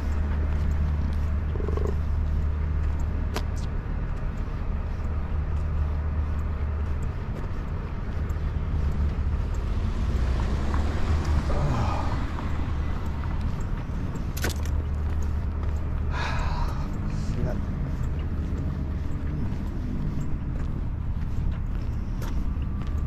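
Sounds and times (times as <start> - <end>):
sharp click: 14.3 - 14.8.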